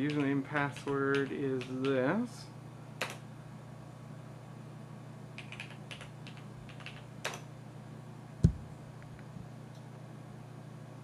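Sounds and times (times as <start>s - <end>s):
steady low hum: 0.0s - 11.0s
keyboard keystrokes: 0.1s - 2.0s, 5.4s - 7.4s
dull thump: 8.4s - 8.7s.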